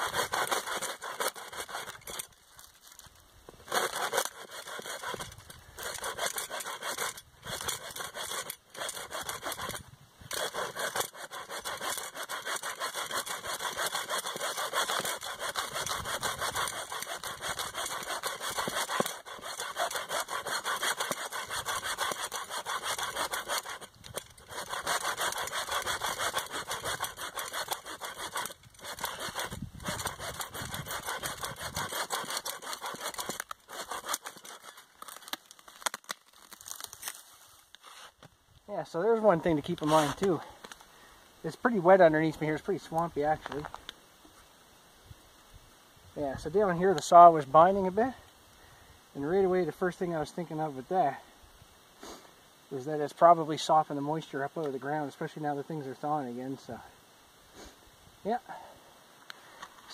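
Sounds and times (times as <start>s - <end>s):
hand saw cutting wood: 0.0s - 2.4s, 3.6s - 36.1s, 39.2s - 40.5s.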